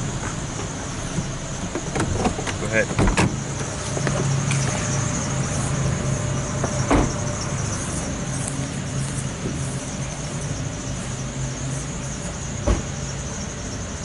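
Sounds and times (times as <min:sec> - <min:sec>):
car engine and road noise: 0:00.0 - 0:14.0
thump: 0:06.9 - 0:07.2, 0:12.6 - 0:12.9.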